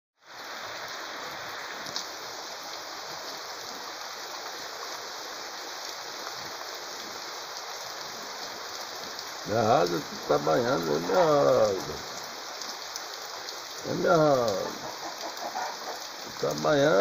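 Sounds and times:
heavy rain falling: 0.2s - 17.0s
water pouring off roof: 5.7s - 17.0s.

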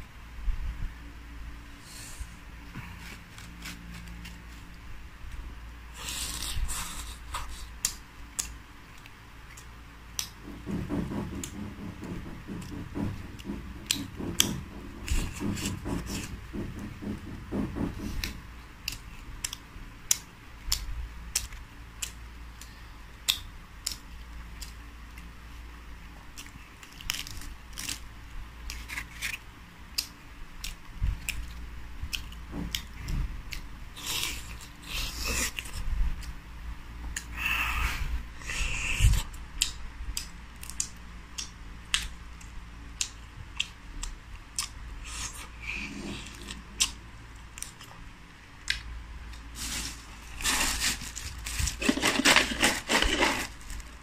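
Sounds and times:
chewing and crunching fried food: 26.2s - 36.4s, 38.6s - 54.0s.

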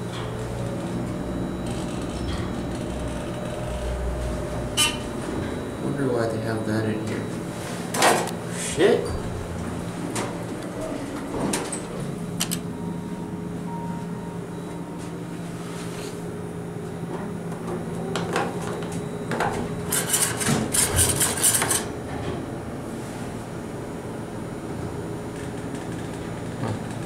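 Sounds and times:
elevator doors rattling clicks: 0.0s - 4.0s, 9.2s - 12.7s, 25.3s - 27.0s
elevator cab low hum: 0.0s - 27.0s.

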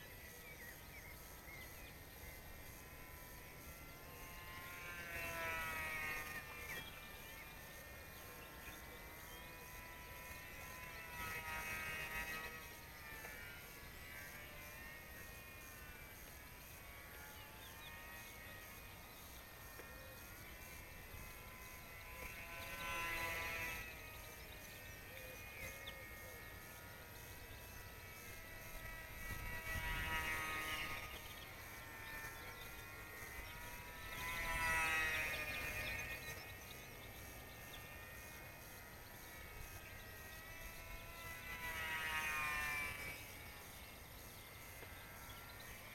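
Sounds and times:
model aeroplane motor whining: 0.0s - 45.9s.

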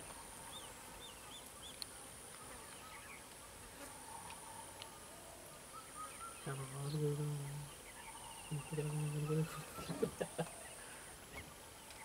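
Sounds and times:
faint bird chirps: 3.9s - 12.0s.

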